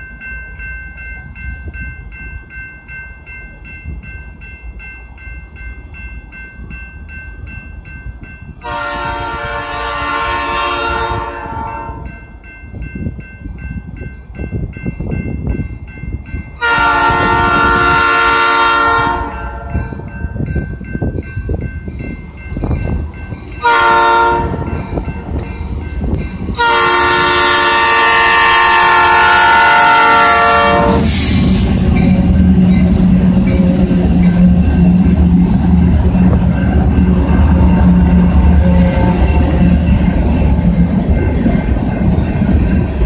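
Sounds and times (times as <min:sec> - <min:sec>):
crossing bell chiming: 0:00.0 - 0:10.1, 0:11.2 - 0:43.0
train rumble: 0:00.0 - 0:43.0
locomotive air horn blasts: 0:08.6 - 0:12.0, 0:16.6 - 0:19.7, 0:23.6 - 0:24.8, 0:26.5 - 0:31.6, 0:37.1 - 0:39.5.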